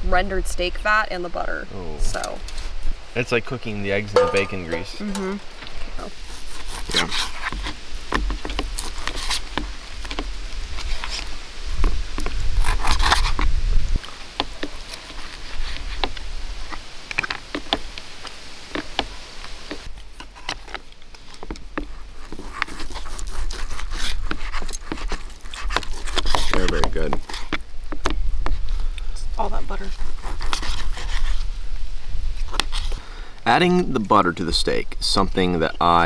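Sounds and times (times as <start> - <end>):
wind rumble on microphone: 7.6 - 14.1.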